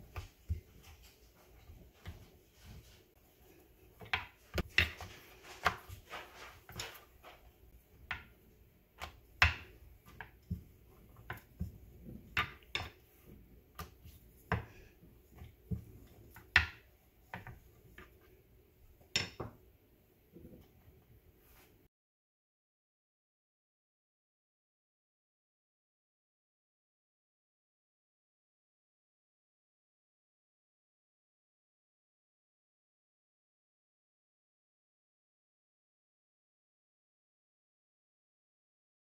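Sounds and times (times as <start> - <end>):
rolling pin knocking on countertop: 9.0 - 17.6, 19.1 - 19.6.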